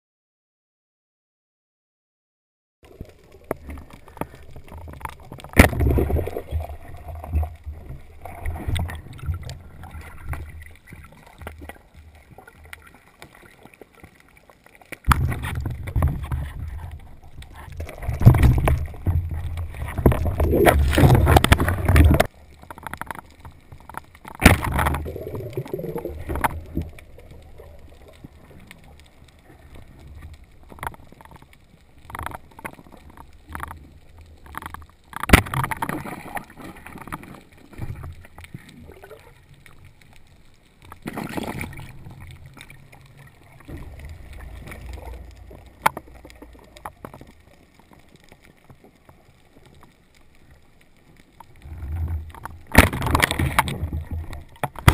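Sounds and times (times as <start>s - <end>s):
muffled underwater rushing: 2.8s - 54.9s.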